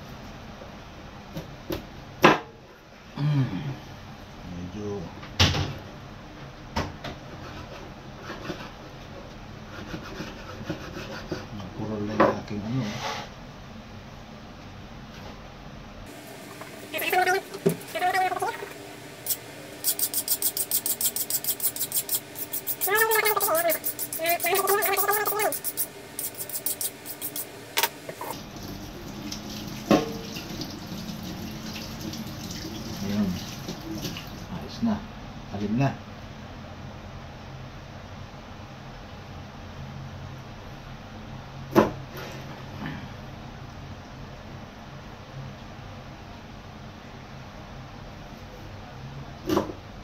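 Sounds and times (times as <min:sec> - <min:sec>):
knife scraping and tapping: 0:19.3 - 0:28.4.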